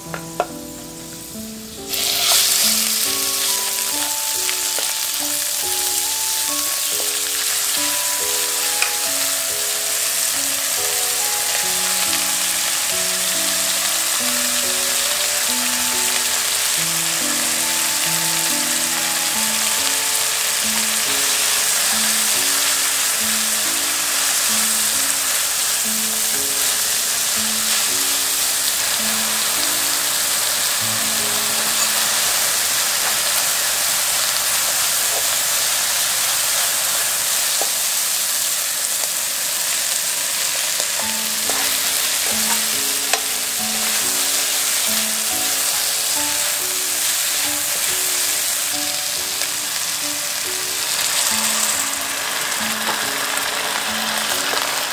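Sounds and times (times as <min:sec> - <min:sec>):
soft background tune: 0:00.0 - 0:35.6, 0:39.6 - 0:54.9
food sizzling in hot oil: 0:00.0 - 0:54.9
spatula scraping wok: 0:01.8 - 0:06.2, 0:19.2 - 0:54.9.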